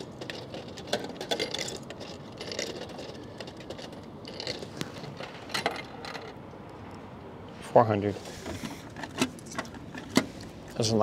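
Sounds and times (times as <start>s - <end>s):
coins clicking into coin mechanism: 0.0s - 6.4s.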